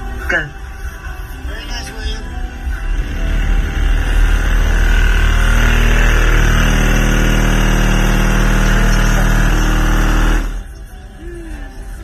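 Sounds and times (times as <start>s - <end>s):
distorted subwoofer bass drone: 1.4s - 10.8s.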